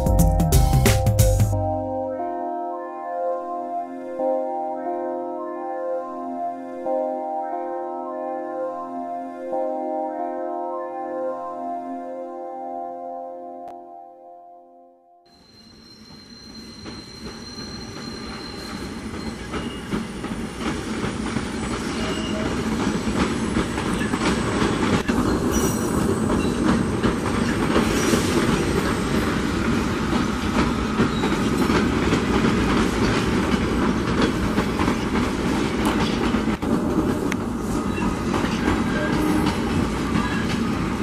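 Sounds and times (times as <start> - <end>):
train wheels rumbling on rails: 16.0 - 41.0
clickety-clack over rail joints: 16.2 - 41.0.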